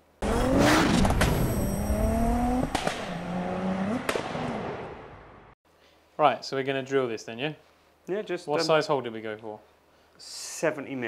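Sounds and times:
car engine revving: 0:00.2 - 0:05.1
sharp whooshing hits: 0:00.3 - 0:05.1.

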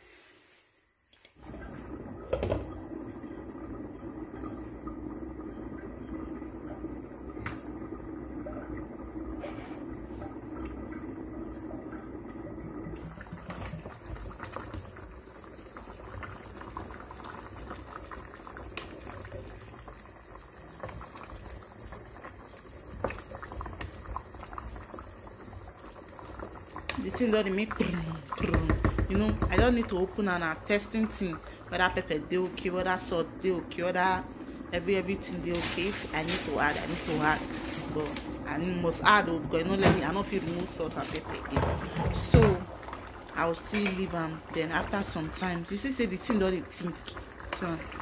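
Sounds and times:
porridge boiling and bubbling: 0:00.0 - 0:48.0
wooden spoon stirring pot: 0:26.8 - 0:30.1.

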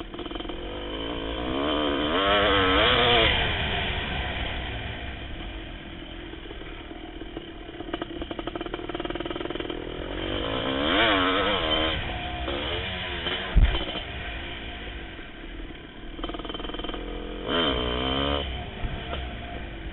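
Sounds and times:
motorcycle engine revving: 0:00.0 - 0:19.9
sharp thump: 0:13.4 - 0:14.2.

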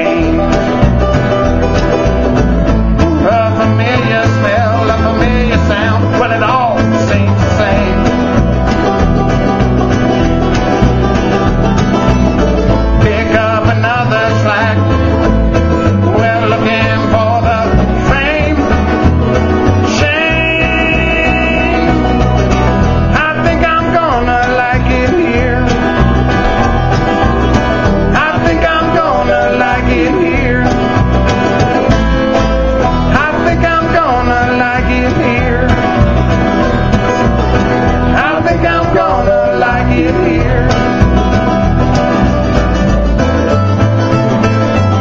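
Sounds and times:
banjo picking: 0:00.0 - 0:45.0
bluegrass band playing: 0:00.0 - 0:45.0
low bass line: 0:00.0 - 0:45.0.

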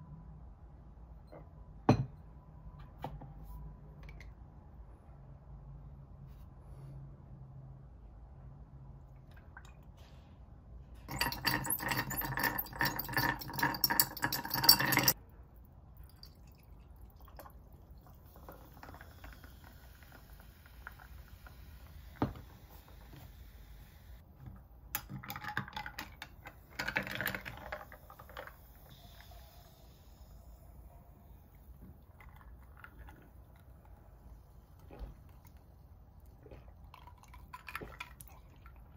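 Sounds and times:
ice cubes clinking in a glass: 0:11.1 - 0:15.2
liquid pouring into a glass: 0:11.1 - 0:15.2, 0:16.0 - 0:22.4, 0:36.8 - 0:38.9.

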